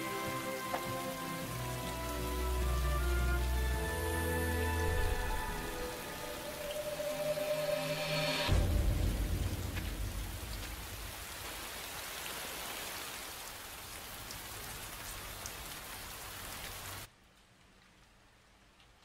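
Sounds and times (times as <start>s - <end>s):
heavy rain: 0.0s - 19.0s
deep low rumble: 8.5s - 11.4s.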